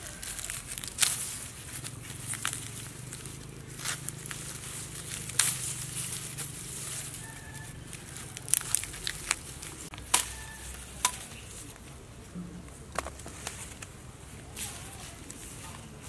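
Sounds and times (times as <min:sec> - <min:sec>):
stalks snapping: 0:00.0 - 0:11.8
dry grass rustling and crackling: 0:00.0 - 0:16.0.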